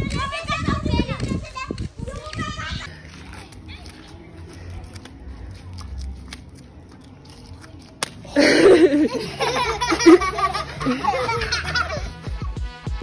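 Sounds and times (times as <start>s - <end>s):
children laughing: 8.3s - 12.6s.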